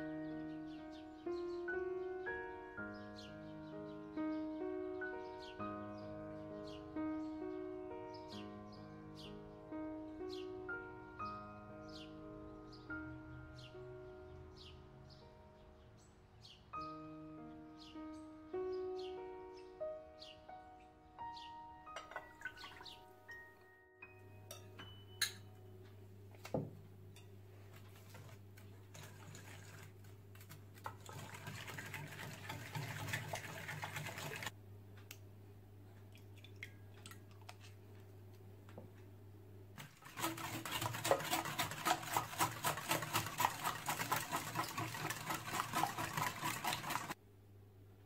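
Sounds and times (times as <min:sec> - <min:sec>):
wire whisk beating in bowl: 0:30.8 - 0:34.5, 0:39.8 - 0:47.2
low steady hum: 0:34.5 - 0:39.8
light clicks and soft stirring: 0:36.0 - 0:39.0.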